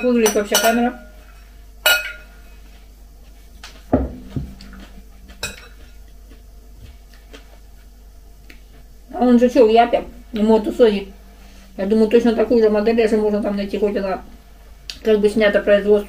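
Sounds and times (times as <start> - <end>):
metal spoon clinking on glass bowl: 0.2 - 1.0
glass bowl set down on table: 4.0 - 4.5.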